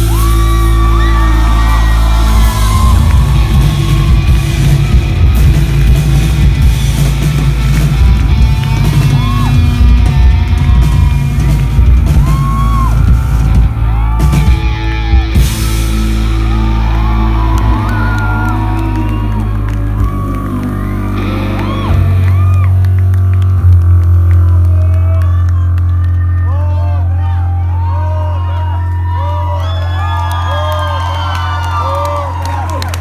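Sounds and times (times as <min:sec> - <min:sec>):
rock band playing: 0:00.0 - 0:25.2
electric guitar bending notes: 0:00.0 - 0:26.4
low bass drone: 0:00.0 - 0:33.0.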